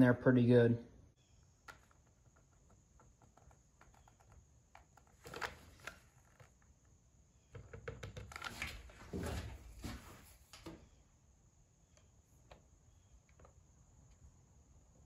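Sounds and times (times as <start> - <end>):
small clicks and scratches: 1.4 - 8.9.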